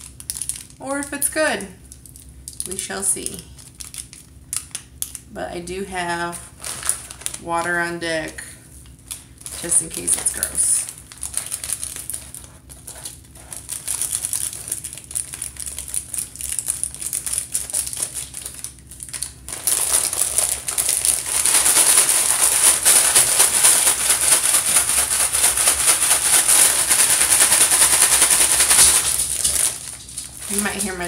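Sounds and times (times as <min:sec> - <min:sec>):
plastic snack bag crinkling: 0:00.0 - 0:05.4, 0:06.1 - 0:31.0
bag of dry noodles shaken: 0:19.4 - 0:31.0.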